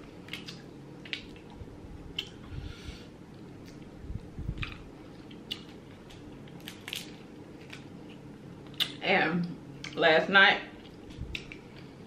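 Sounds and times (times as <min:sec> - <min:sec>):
wet chewing: 0:04.5 - 0:07.9.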